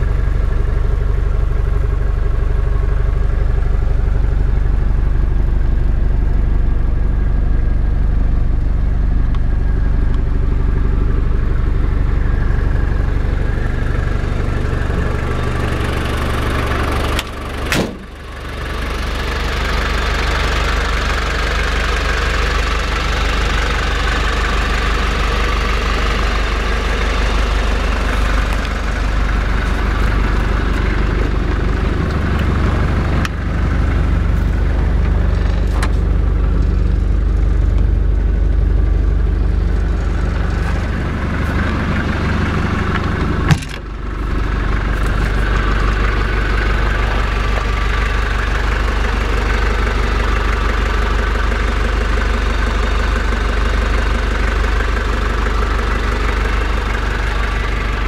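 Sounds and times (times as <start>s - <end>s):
diesel engine idling: 0.0s - 58.0s
sharp knock: 17.7s - 18.0s.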